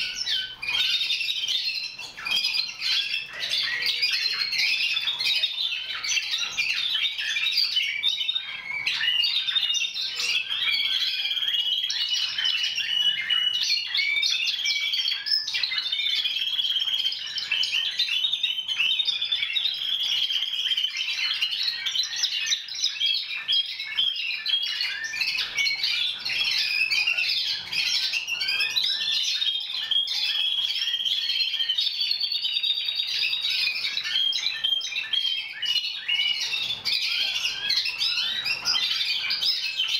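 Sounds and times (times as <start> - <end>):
canaries singing trills: 0.0 - 39.9.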